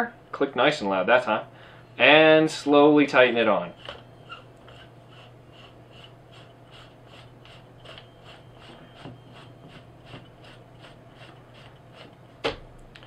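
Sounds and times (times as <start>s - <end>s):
threads scraping: 2.6s - 12.4s.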